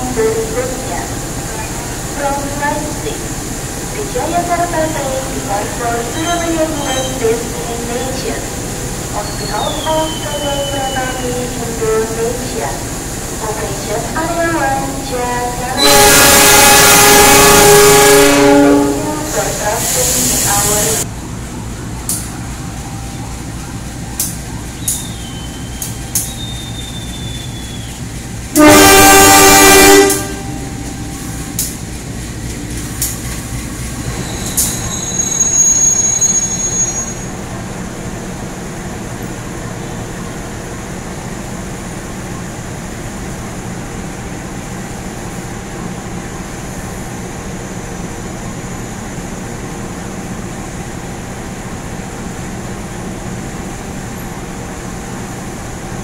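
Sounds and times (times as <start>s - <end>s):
hiss with high squeal: 6.0s - 13.4s, 19.3s - 21.0s, 24.2s - 28.2s, 33.9s - 37.5s
locomotive horn blast: 15.2s - 21.0s, 28.5s - 31.6s.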